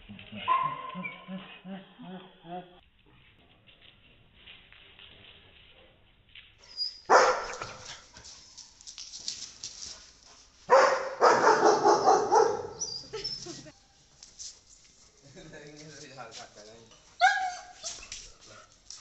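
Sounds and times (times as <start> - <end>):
dogs barking: 0.3 - 1.8, 7.1 - 7.9, 10.7 - 13.0, 17.2 - 17.8.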